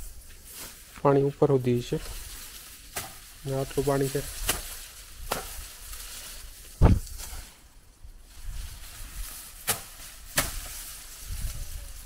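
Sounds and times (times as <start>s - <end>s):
faint outdoor hiss: 0.0s - 12.0s
heavy low thump: 6.8s - 7.2s.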